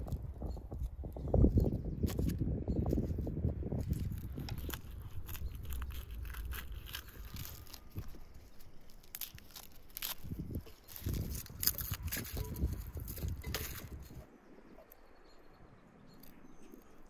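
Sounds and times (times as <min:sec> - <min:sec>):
garlic skins crackling and rustling: 0:02.0 - 0:14.2.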